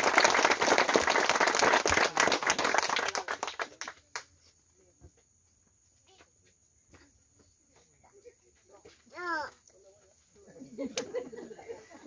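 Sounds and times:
crowd applauding: 0.0 - 4.2.

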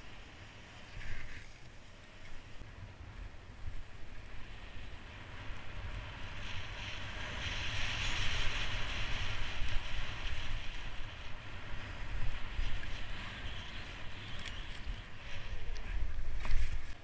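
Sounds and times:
skis hissing over snow: 0.0 - 2.6
wind buffeting microphone: 0.0 - 17.0.

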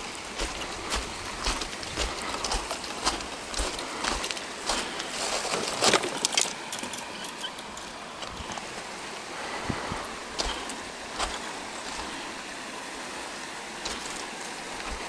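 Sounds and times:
footsteps crunching on gravel: 0.0 - 6.1, 9.7 - 12.3, 13.8 - 15.0.

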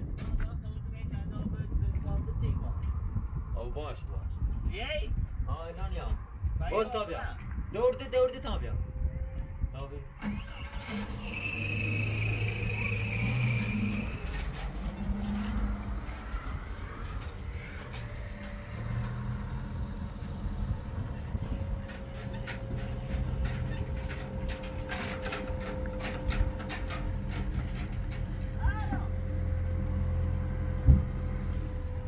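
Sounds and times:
vehicle engine running: 10.4 - 32.0.

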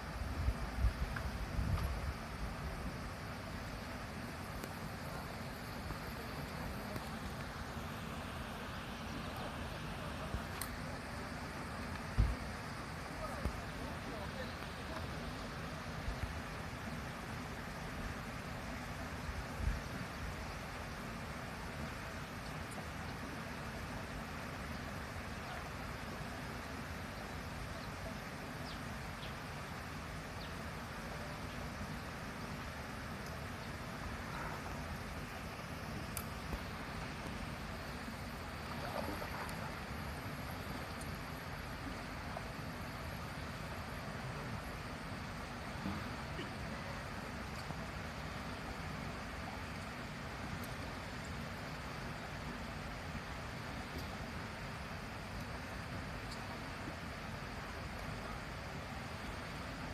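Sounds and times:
rushing hiss over low rumble: 0.0 - 59.9
wind rumble on microphone: 0.1 - 3.1
faint bird chirps: 27.1 - 29.5.

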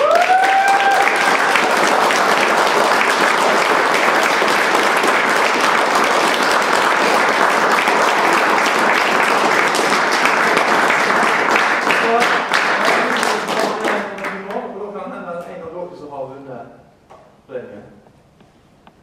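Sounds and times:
audience applauding: 0.0 - 14.8.

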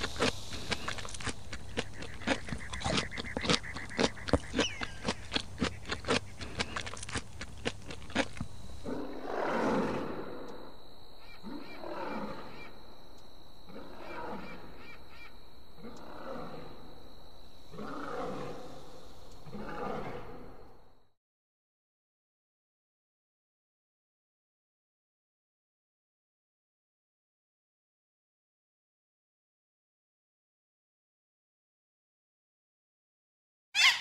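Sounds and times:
bird sharp clicking calls: 0.0 - 8.0
leopard growling: 0.0 - 10.5, 13.7 - 14.7, 15.8 - 16.9, 17.7 - 20.8.

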